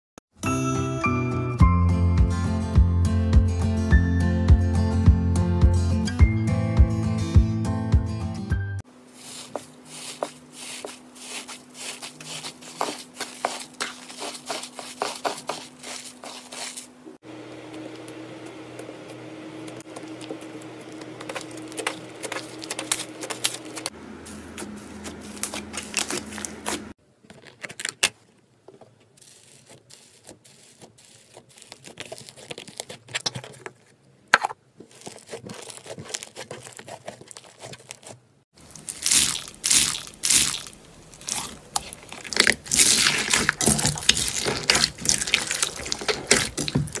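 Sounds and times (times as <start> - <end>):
hands squishing slime: 21.0 - 23.9, 29.2 - 33.8, 34.8 - 47.0.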